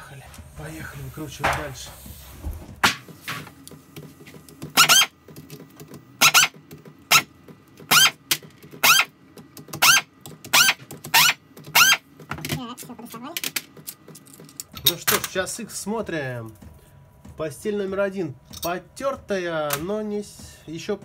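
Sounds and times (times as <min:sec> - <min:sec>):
bolts squeaking as unscrewed: 0:04.8 - 0:05.2.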